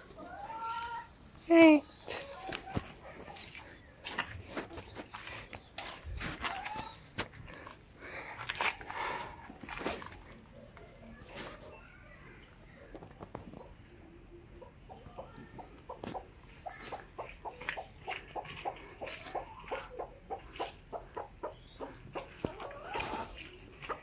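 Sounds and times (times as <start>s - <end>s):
hens clucking: 0.0s - 11.7s, 12.8s - 24.0s.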